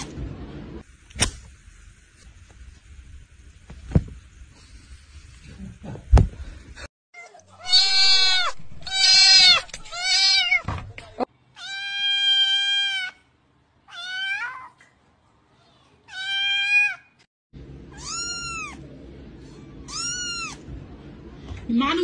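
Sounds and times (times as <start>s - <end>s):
kittens meowing: 7.6s - 10.6s, 18.0s - 18.8s, 19.8s - 20.6s.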